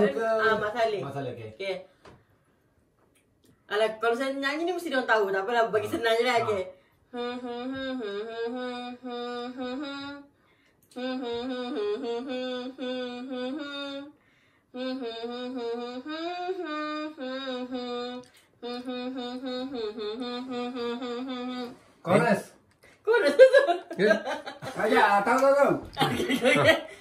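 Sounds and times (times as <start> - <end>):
person humming: 7.1 - 10.3, 10.9 - 14.2, 14.8 - 21.8.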